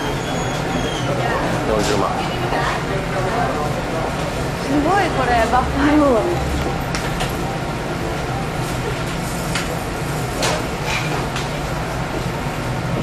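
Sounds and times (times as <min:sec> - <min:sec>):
murmur of voices: 0:00.0 - 0:11.3
low hum: 0:04.1 - 0:13.0.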